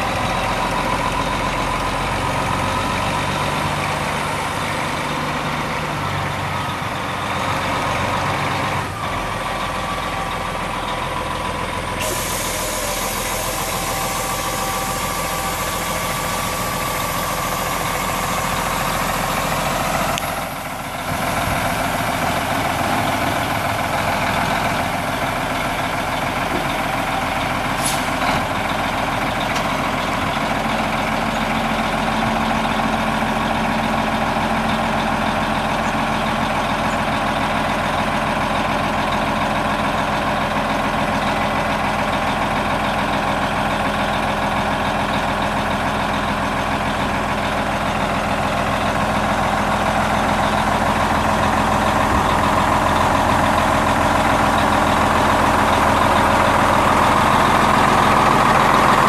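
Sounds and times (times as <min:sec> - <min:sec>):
diesel engine idling: 0:00.0 - 0:59.0
hydraulic hoist humming: 0:07.2 - 0:31.3.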